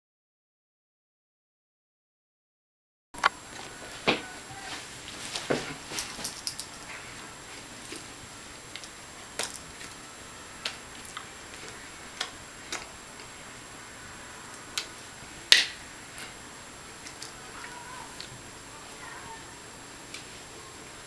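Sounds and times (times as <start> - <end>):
hands clicking and slapping: 15.5 - 15.8.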